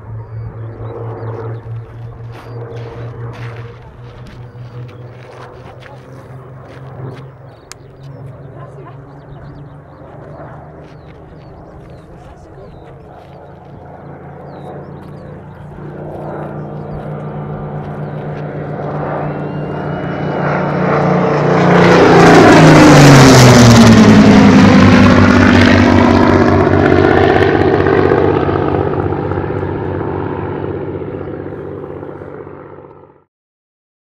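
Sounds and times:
propeller plane engines droning: 0:00.0 - 0:33.3.

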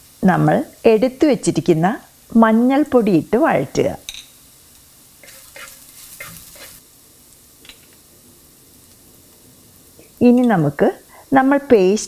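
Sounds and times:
faint oil sizzle: 0:00.0 - 0:12.0
utensil scraping clay pot: 0:05.2 - 0:06.8.

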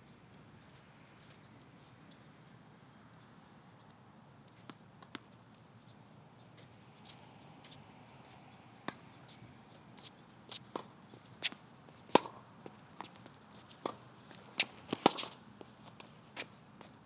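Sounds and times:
tennis ball bouncing on hard court: 0:08.8 - 0:09.1, 0:10.7 - 0:12.4, 0:14.6 - 0:15.4
tennis ball struck by racket: 0:10.7 - 0:12.4, 0:14.6 - 0:15.4.

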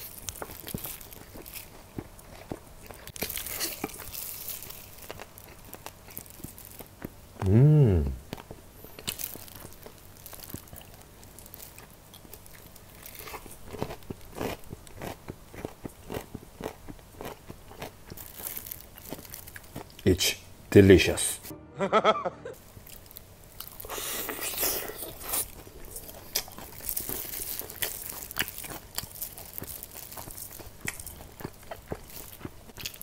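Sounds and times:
crunching and chewing fried chicken: 0:00.0 - 0:07.4, 0:08.2 - 0:20.3, 0:22.6 - 0:33.0
person humming mm: 0:07.4 - 0:08.3.

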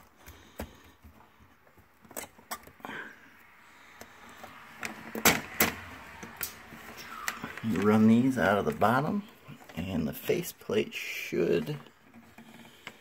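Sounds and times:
faint scratchy rustling: 0:06.6 - 0:13.0.

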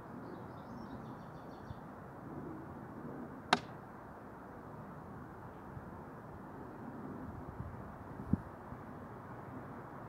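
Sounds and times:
sharp snap: 0:03.5 - 0:03.8.

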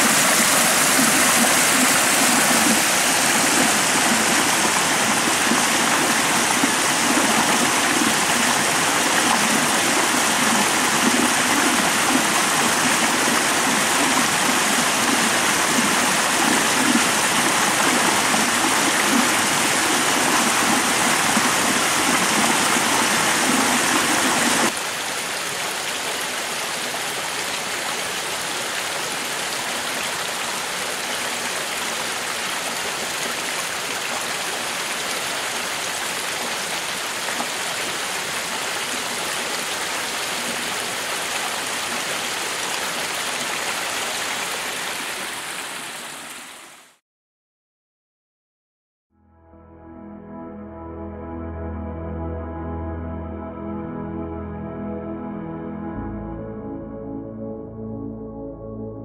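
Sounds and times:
brook rushing over rocks: 0:00.0 - 0:24.8.

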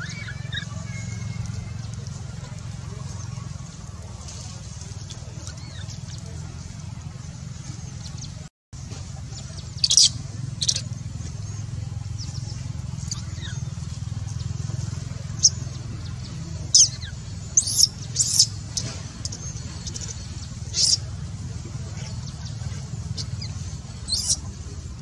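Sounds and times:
baby monkey squeaking: 0:00.0 - 0:00.7, 0:09.7 - 0:10.9, 0:16.7 - 0:21.0, 0:23.0 - 0:24.5.

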